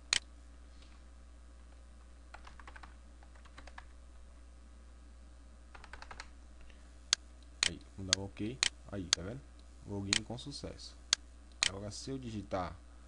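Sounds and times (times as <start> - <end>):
typing on computer keyboard: 2.3 - 3.9, 5.7 - 6.3.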